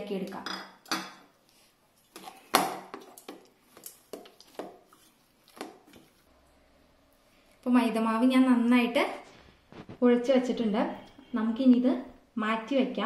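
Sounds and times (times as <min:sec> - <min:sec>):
hands kneading dough in a pot: 0:01.4 - 0:06.4.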